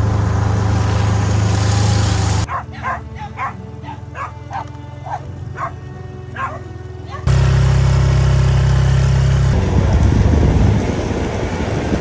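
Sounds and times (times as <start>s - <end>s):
utility vehicle engine driving: 0.0s - 12.0s
dog yapping: 2.5s - 7.3s.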